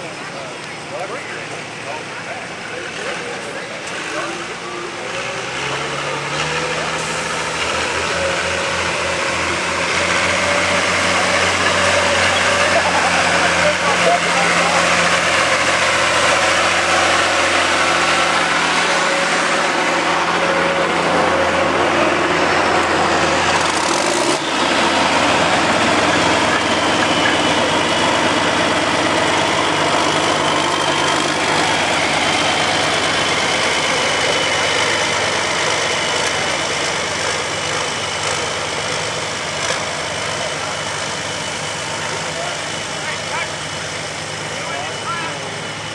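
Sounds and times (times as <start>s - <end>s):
tractor engine running: 0.0s - 45.9s.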